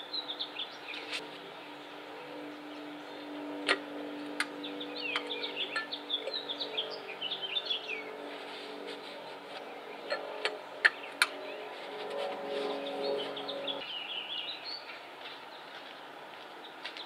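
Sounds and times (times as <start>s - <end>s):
songbird twittering: 4.2s - 8.3s.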